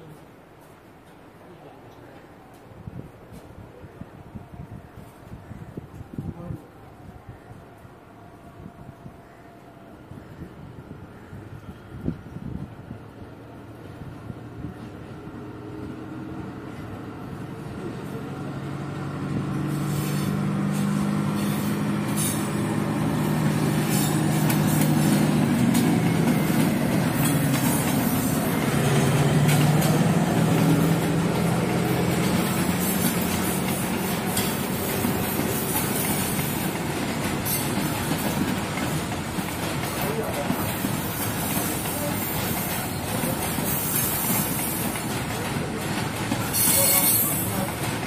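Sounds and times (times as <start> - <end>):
diesel locomotive engine drone: 10.0 - 48.0
train wheels clattering on rails: 18.8 - 48.0.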